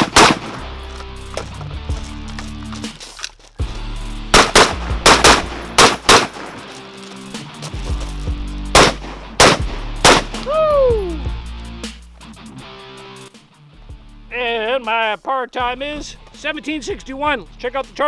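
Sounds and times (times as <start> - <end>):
rifle gunshots: 0.0 - 0.8, 4.3 - 6.7, 8.7 - 10.4.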